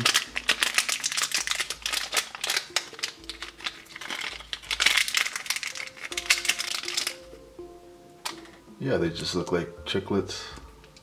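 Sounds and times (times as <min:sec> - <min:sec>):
gum packet tearing and crinkling: 0:00.0 - 0:07.3
quiet background music: 0:00.0 - 0:11.0.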